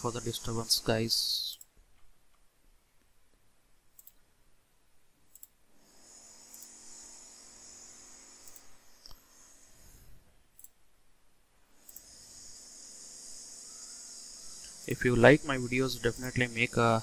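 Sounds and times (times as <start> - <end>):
machine whine with high hiss: 0.0 - 1.6, 5.8 - 10.2, 11.8 - 17.0
computer mouse clicks: 1.5 - 2.4, 3.9 - 4.3, 5.3 - 5.6, 6.5 - 6.8, 8.4 - 9.2, 10.5 - 10.8, 11.8 - 12.1.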